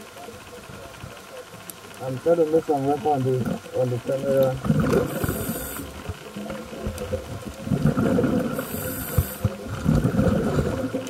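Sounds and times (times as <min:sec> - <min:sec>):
exhaust bubbles rumbling: 0:02.0 - 0:11.0
regulator inhalation hiss: 0:05.0 - 0:06.1, 0:08.4 - 0:09.6.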